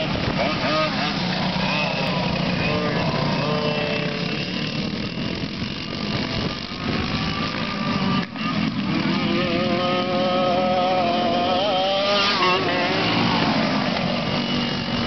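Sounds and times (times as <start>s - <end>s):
kart engines revving high: 0.0s - 15.0s.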